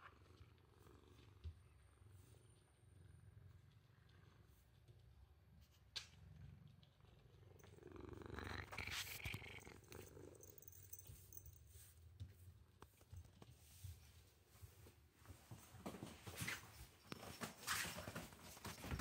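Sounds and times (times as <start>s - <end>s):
cat purring: 0.0s - 11.6s.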